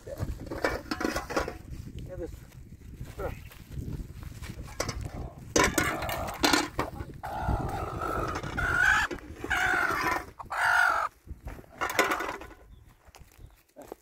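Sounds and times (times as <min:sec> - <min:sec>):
chicken calling: 0:07.2 - 0:11.2.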